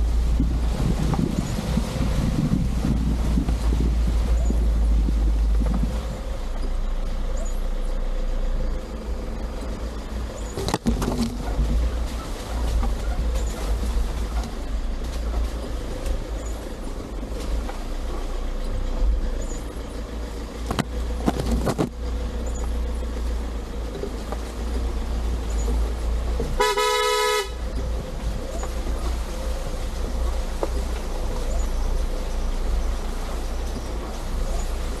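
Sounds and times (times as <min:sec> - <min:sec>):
steady low rumble: 0:00.0 - 0:35.0
vehicle horn toot: 0:26.6 - 0:27.6.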